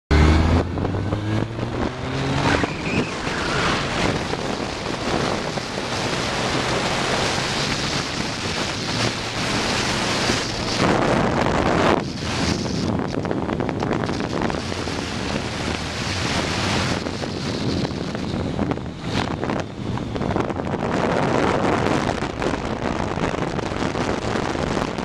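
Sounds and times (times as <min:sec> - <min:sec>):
motorcycle engine accelerating: 0:00.1 - 0:25.0
wind rush on microphone: 0:00.2 - 0:25.0.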